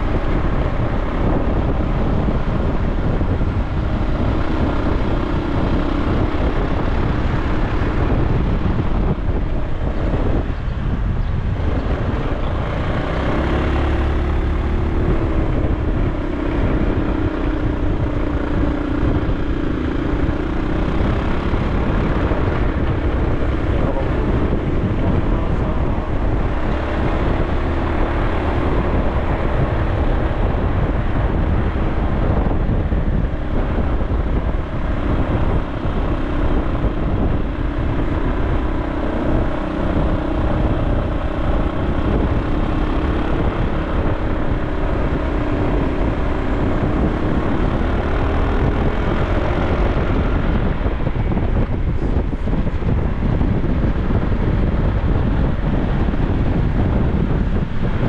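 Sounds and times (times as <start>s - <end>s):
road and wind noise: 0.0s - 58.0s
vehicle engine running: 0.0s - 58.0s.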